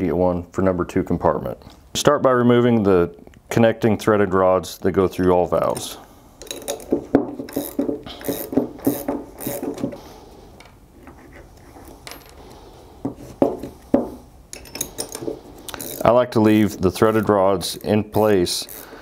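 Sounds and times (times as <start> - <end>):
metal nuts and washers clinking: 5.7 - 10.0, 11.6 - 12.6, 14.5 - 16.1.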